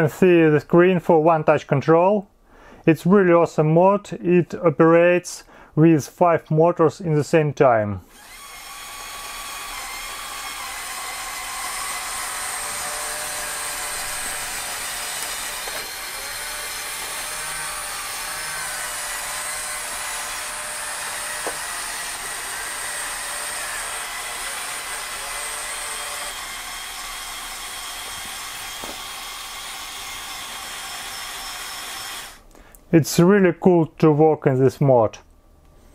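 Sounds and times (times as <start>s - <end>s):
electric motors whirring: 8.1s - 32.4s.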